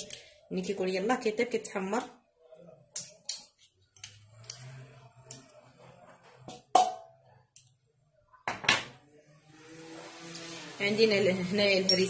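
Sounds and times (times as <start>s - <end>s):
metal spoon clinking on bowl: 11.8s - 12.0s.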